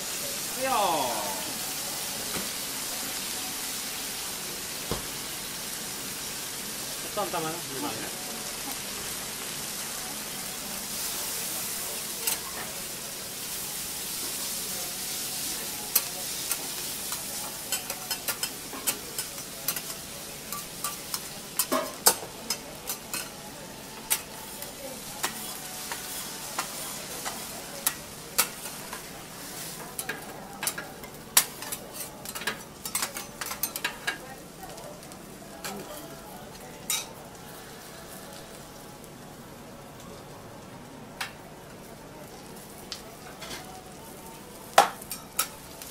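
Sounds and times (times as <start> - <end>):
noodles sizzling on a griddle: 0.0 - 45.9
metal spatulas clacking and scraping: 31.4 - 34.2.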